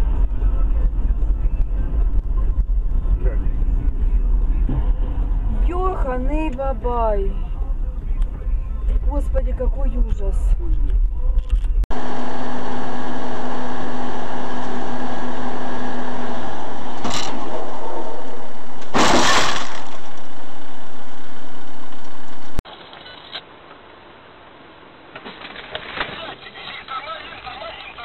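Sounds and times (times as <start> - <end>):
vehicle engine and road noise: 0.0 - 28.0
loud crashing impact: 17.0 - 21.0.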